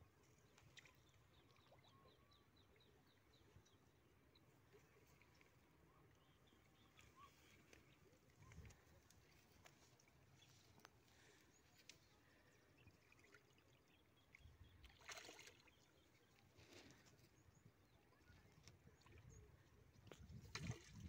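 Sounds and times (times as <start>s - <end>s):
fish splashing in water: 14.8s - 15.7s.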